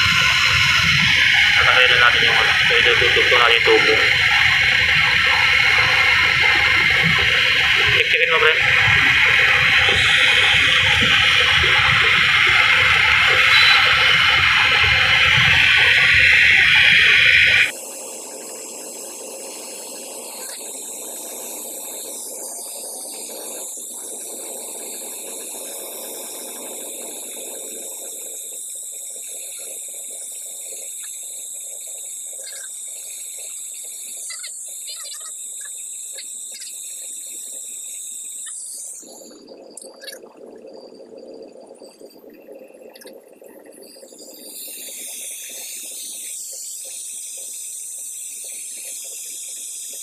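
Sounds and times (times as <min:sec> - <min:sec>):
torch flame hissing: 0:00.0 - 0:23.2.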